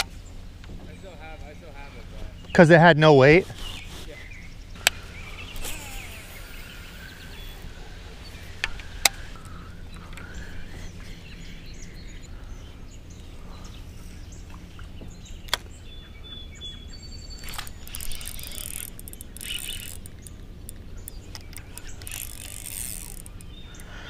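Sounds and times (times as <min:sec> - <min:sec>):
faint bird chirps: 0:03.5 - 0:24.0
sharp clicks: 0:17.4 - 0:23.9.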